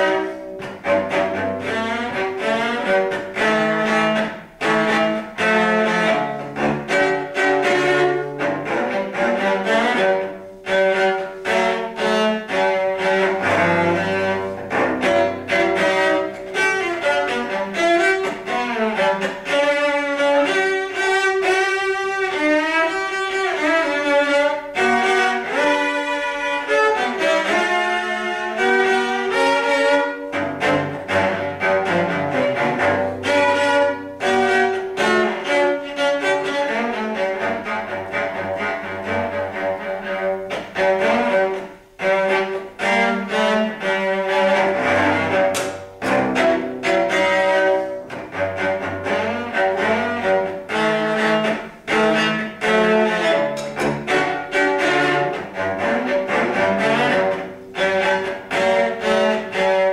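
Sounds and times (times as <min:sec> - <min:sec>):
bowed cello melody: 0:00.0 - 0:59.9.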